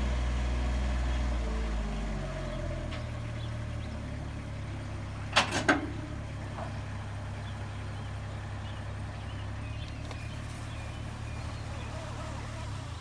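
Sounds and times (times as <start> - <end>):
truck engine idling: 0.0 - 13.0.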